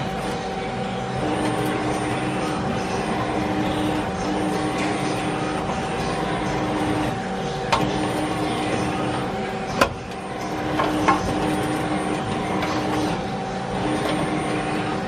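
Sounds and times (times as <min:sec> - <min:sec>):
lathe mechanical hum: 0:00.0 - 0:15.0.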